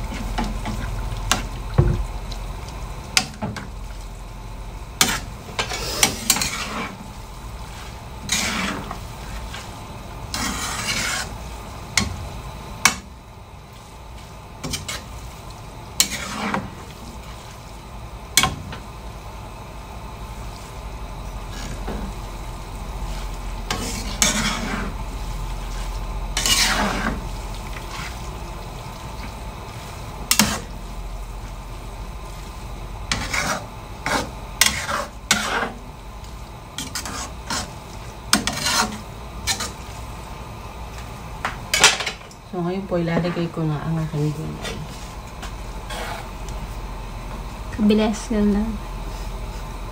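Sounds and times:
low sizzle: 0.0s - 49.9s
metal spatulas scraping a wok: 5.0s - 9.7s, 10.3s - 11.4s, 14.6s - 15.1s, 16.0s - 16.9s, 23.6s - 25.0s, 25.7s - 28.3s, 30.3s - 30.8s, 33.1s - 35.8s, 36.8s - 39.9s, 44.4s - 46.3s.

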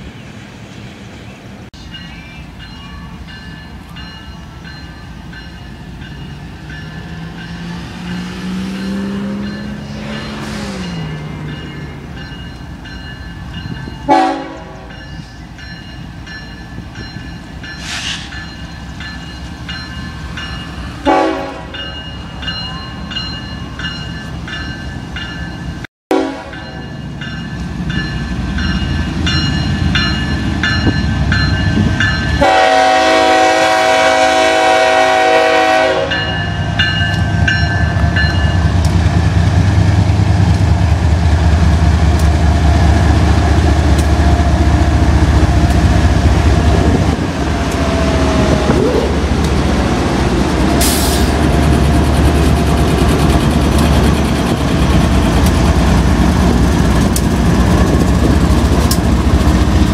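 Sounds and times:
crossing bell ringing: 1.8s - 38.9s
engine and wheel rumble: 5.2s - 16.3s, 36.1s - 59.9s
locomotive horn blasts: 14.0s - 14.9s, 21.0s - 21.9s, 26.1s - 26.8s, 32.4s - 36.4s.

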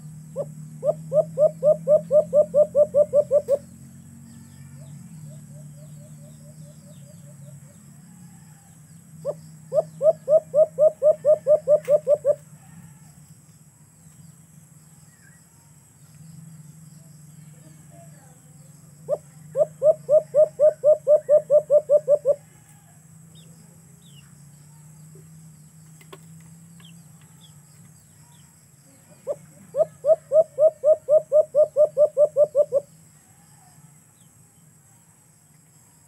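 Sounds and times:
dove cooing: 0.4s - 3.6s, 9.2s - 12.5s, 19.0s - 22.5s, 29.1s - 32.9s.

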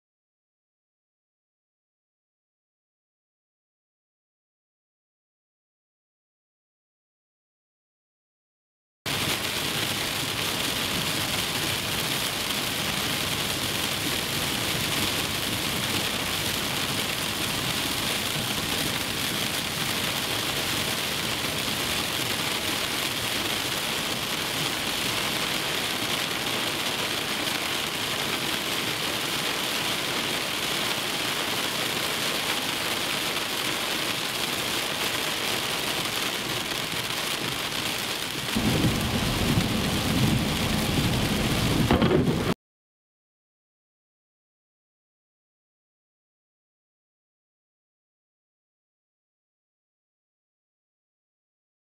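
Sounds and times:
heavy rain on car: 9.1s - 42.6s.

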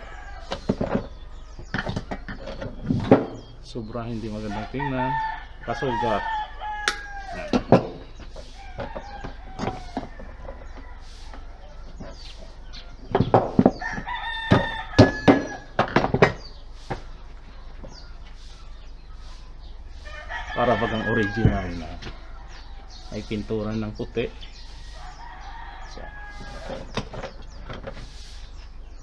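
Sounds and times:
rooster crowing: 0.0s - 0.5s, 4.5s - 7.8s, 8.6s - 12.0s, 13.8s - 15.8s, 20.0s - 23.4s, 24.6s - 26.9s
chickens clucking: 0.0s - 29.0s.

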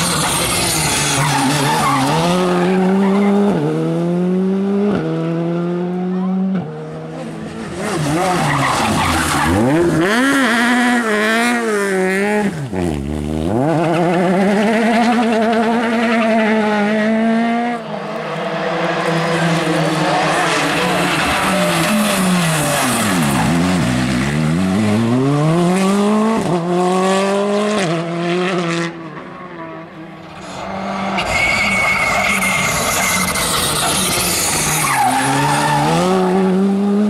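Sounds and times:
tyres skidding: 0.0s - 4.1s, 6.8s - 26.8s, 28.9s - 37.0s
rally car engine accelerating: 0.0s - 29.3s, 30.2s - 37.0s.

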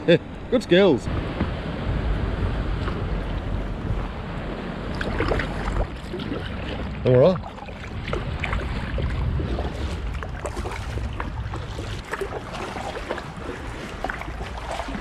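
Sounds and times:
paddle dipping into water: 4.8s - 15.0s
water drips and splashes: 4.9s - 15.0s.

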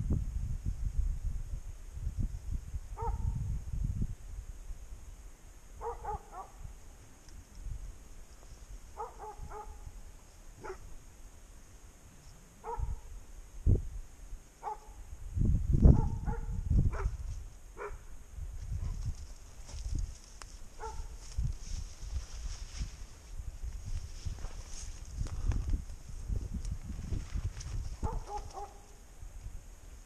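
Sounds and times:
dog barking: 3.0s - 3.3s, 5.8s - 6.6s, 9.0s - 9.8s, 10.6s - 10.8s, 12.6s - 13.0s, 14.6s - 14.9s, 15.9s - 17.2s, 17.8s - 18.0s, 20.8s - 21.1s, 28.0s - 28.9s
rustling through dry scrub: 18.5s - 29.0s.

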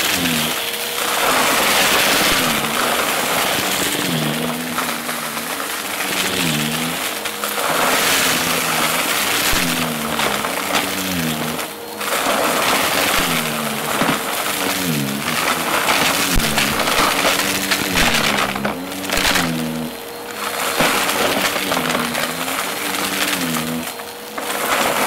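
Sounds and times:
debris crunching in vacuum: 0.0s - 25.0s
vacuum cleaner motor humming: 0.0s - 25.0s.

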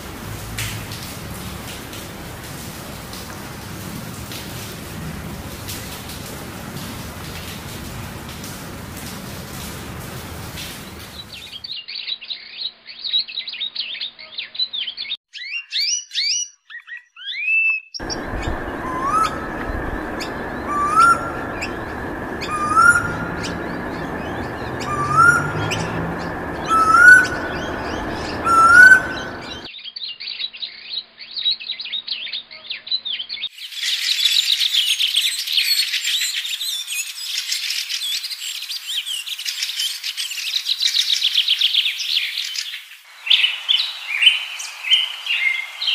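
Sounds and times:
small birds chirping: 5.7s - 45.9s
rising whistled bird note: 18.0s - 29.7s
steady rushing background: 18.0s - 29.7s.

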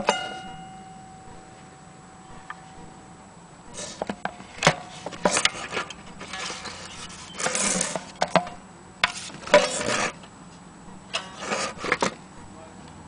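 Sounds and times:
rubbing on mandolin body: 3.7s - 8.1s, 11.3s - 12.1s.

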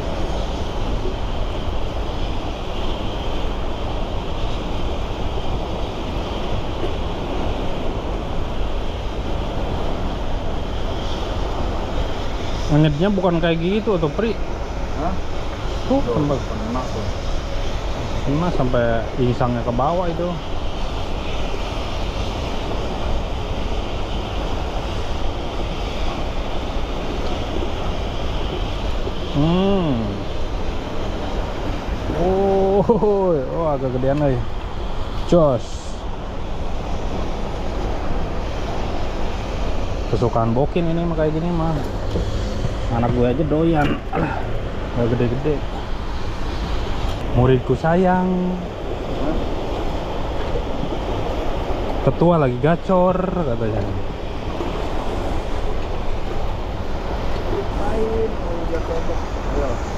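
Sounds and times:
turbulent water rushing: 0.0s - 59.9s
wind buffeting microphone: 0.0s - 59.9s
person humming: 29.4s - 30.2s.

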